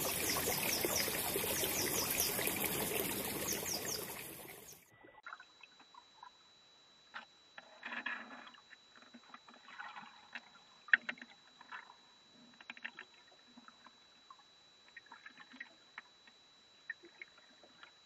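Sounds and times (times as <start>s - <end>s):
faint steady high tone: 0.0s - 4.8s
water splashing and sloshing: 0.0s - 5.4s.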